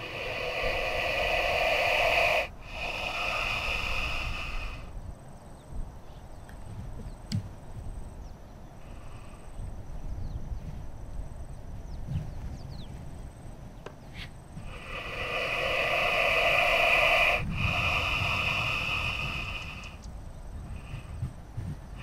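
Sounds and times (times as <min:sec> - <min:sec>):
snake hissing: 0:00.0 - 0:05.0, 0:08.8 - 0:09.5, 0:14.6 - 0:20.1, 0:20.7 - 0:21.2.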